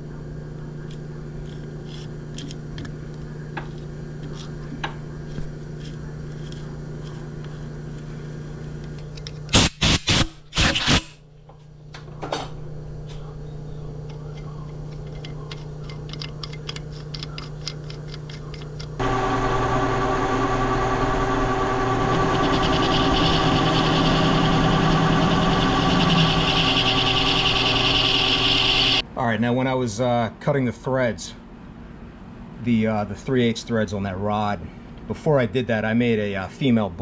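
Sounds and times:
lathe motor hum: 14.1s - 29.0s
high machine hiss: 19.0s - 29.0s.

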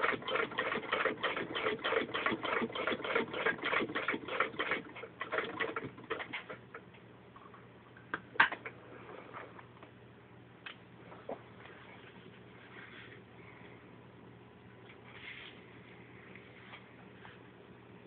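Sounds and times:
sewing machine stitching clatter: 0.0s - 6.6s.

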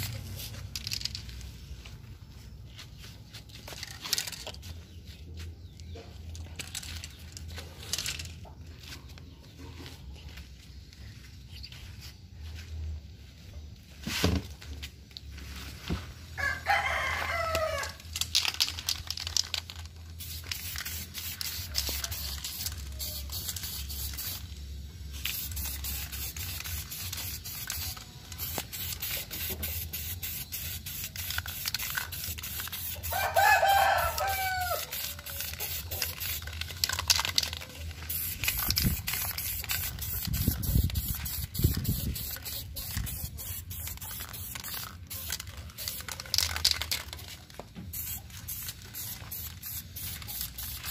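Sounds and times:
rooster crowing: 16.4s - 18.0s, 33.0s - 35.6s
aerosol spray can hissing: 20.2s - 24.6s, 25.2s - 33.2s, 34.0s - 47.0s, 47.9s - 50.9s.

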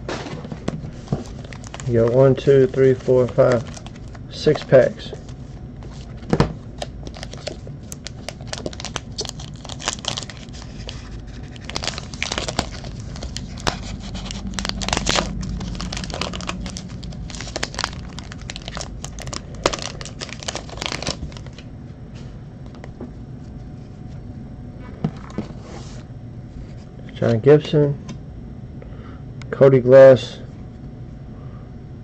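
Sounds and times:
foil wrapper crinkling and tearing: 1.2s - 6.2s, 6.8s - 21.6s.

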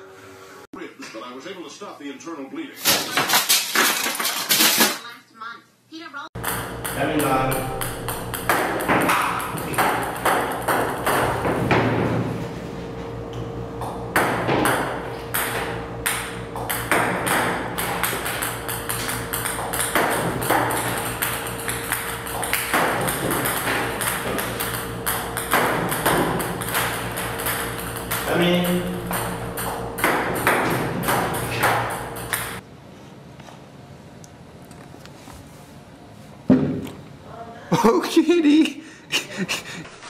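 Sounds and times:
table tennis balls clicking on table: 6.4s - 11.5s, 14.6s - 32.6s.

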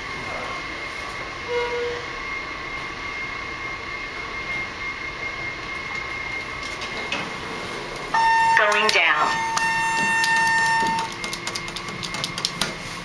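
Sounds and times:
metro station hum: 0.0s - 13.0s
high whine: 0.2s - 13.0s.

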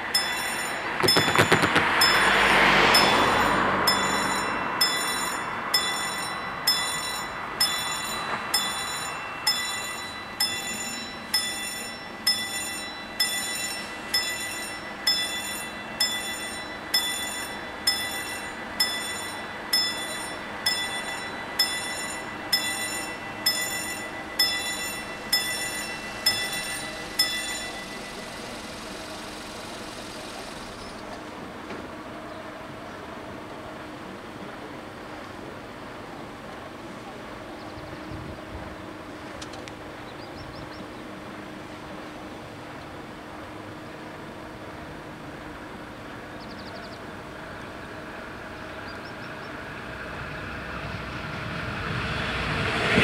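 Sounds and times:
passing car: 0.0s - 11.4s, 47.0s - 53.0s
level crossing bells ringing: 0.0s - 31.1s.

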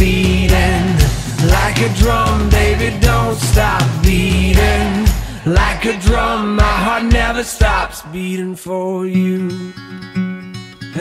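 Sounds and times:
pop song with drum beat: 0.0s - 8.5s
person singing: 0.0s - 9.8s.

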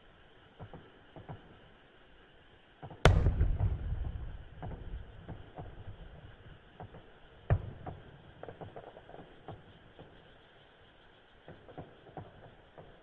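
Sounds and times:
firework boom: 3.1s - 6.0s
firework sharp bang: 3.1s - 6.0s
firework crackles: 3.1s - 7.0s.

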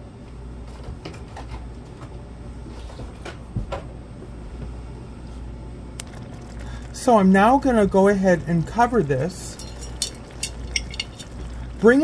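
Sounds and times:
steady low hum: 0.0s - 12.0s
broth bubbling in a pan: 6.0s - 12.0s.

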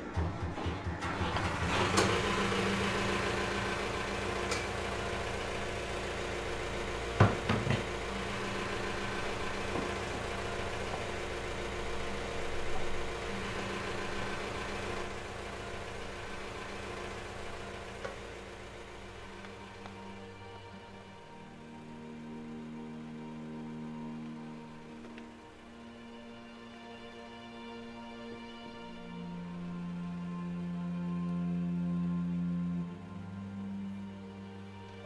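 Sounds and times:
engine idling: 0.0s - 26.0s.

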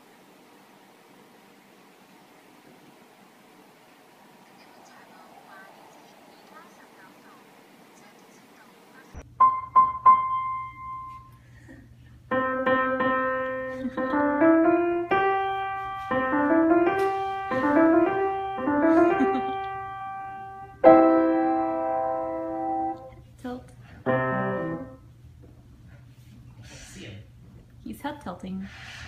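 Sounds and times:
piano music: 9.2s - 11.4s, 12.3s - 23.2s, 24.0s - 25.1s.

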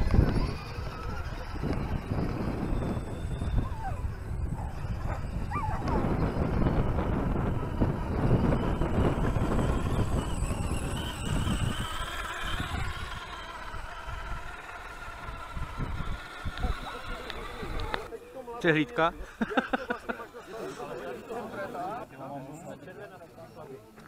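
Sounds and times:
rc car rumbling over stones: 0.0s - 18.1s
wavering whine: 0.0s - 19.1s.

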